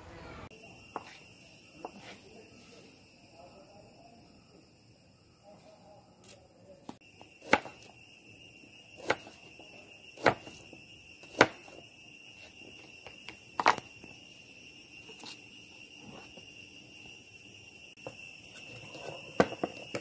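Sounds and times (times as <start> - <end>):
steady high-pitched tone: 0.5 - 5.6, 7.0 - 20.0
knife striking cutting board: 7.4 - 7.9, 10.2 - 11.8.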